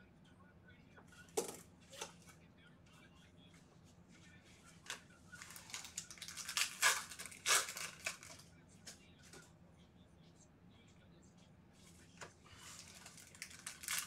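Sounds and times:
foil wrapper crinkling: 4.9s - 8.4s, 12.5s - 14.0s.

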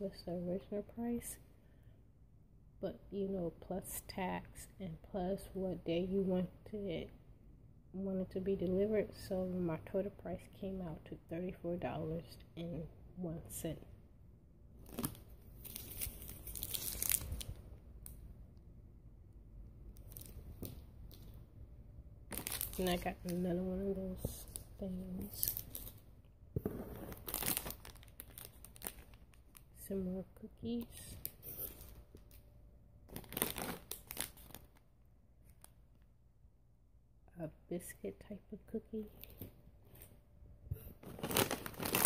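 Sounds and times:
plastic wrappers crinkling: 14.8s - 17.6s, 20.0s - 21.4s, 22.3s - 23.6s, 24.2s - 26.0s, 26.8s - 29.8s, 33.1s - 34.8s, 41.0s - 42.0s.

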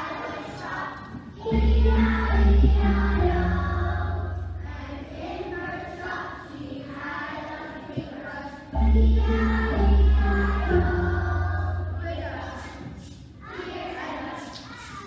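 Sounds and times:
children's choir singing: 0.0s - 15.0s
deep held low notes: 1.5s - 5.1s, 8.8s - 12.6s.

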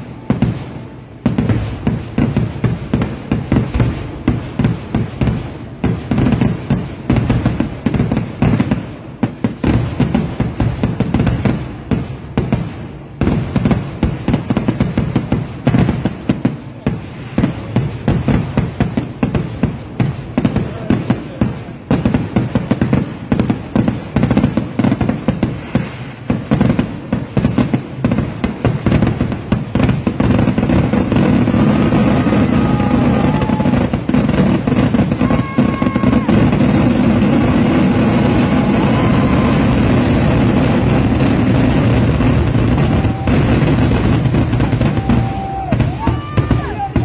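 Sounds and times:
fireworks exploding: 0.0s - 47.0s.

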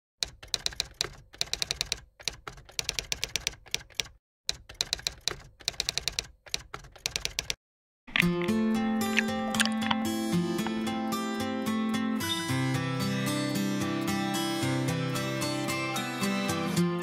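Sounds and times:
typewriter keys clacking: 0.2s - 7.6s.

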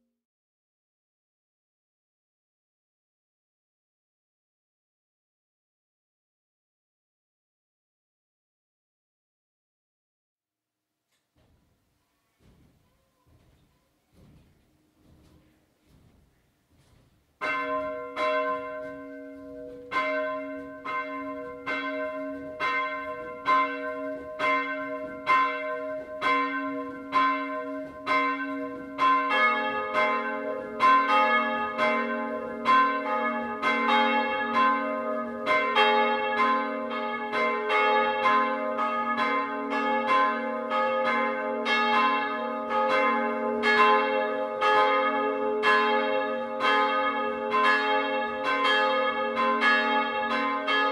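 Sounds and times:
church bell ringing: 17.4s - 50.9s
deeper church bell ringing: 17.4s - 50.9s.

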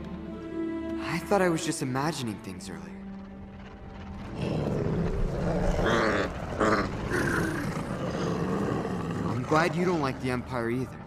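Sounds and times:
creature growling low: 4.3s - 10.5s.

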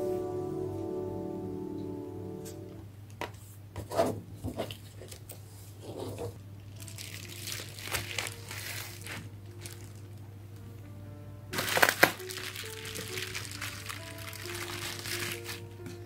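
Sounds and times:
bubble wrap crinkling: 6.6s - 10.3s, 11.6s - 16.0s.

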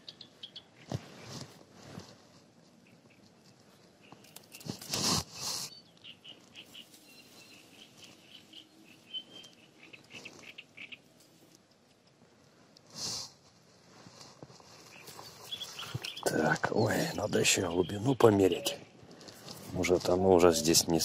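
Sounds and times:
small bird chirping: 0.0s - 0.9s, 2.8s - 4.8s, 5.4s - 11.5s, 14.8s - 19.0s
clothing and hands rustling: 0.8s - 5.7s, 11.2s - 16.7s.

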